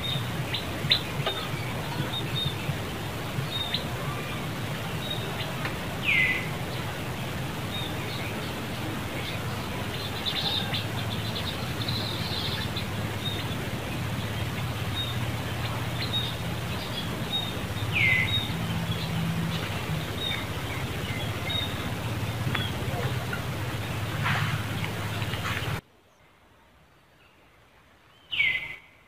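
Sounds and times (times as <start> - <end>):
low hum: 6.6 - 25.8.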